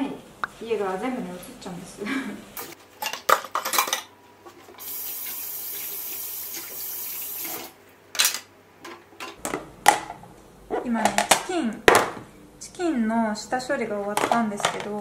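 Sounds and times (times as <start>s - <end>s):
pots and dishes clattering: 2.6s - 4.6s.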